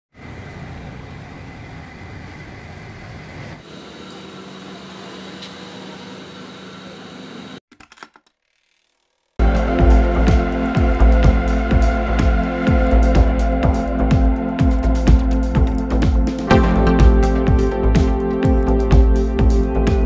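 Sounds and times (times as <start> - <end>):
mechanical hum: 0.2 - 7.6.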